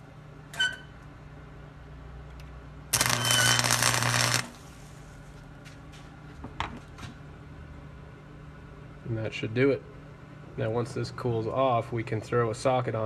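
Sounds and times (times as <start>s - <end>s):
steady welder hum: 0.0s - 6.2s
welder arc crackling: 2.9s - 5.0s.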